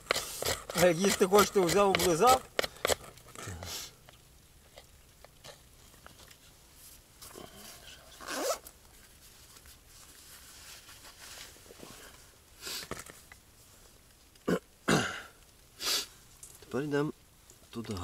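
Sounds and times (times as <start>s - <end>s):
rustling scraping noises: 4.6s - 14.3s.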